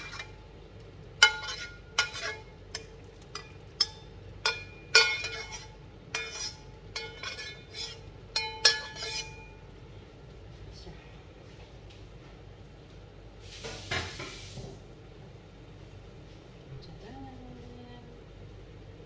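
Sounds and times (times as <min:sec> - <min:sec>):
metal skimmer scraping steel wok: 0:00.0 - 0:00.4, 0:01.2 - 0:09.5.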